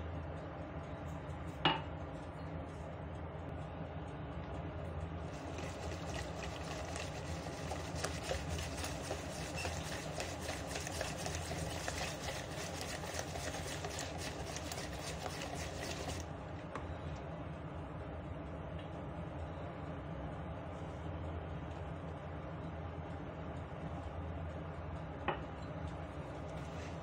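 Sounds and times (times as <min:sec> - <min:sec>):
whisk beating batter in bowl: 0:05.3 - 0:16.4.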